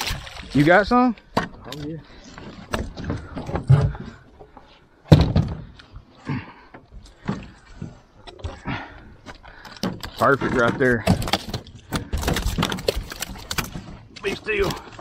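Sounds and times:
fish thumping in plastic barrel: 9.7 - 14.9.

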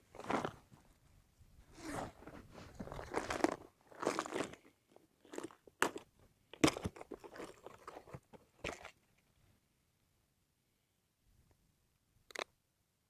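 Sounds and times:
plastic box being handled: 6.6 - 8.9
sharp plastic clicks: 12.3 - 12.5.

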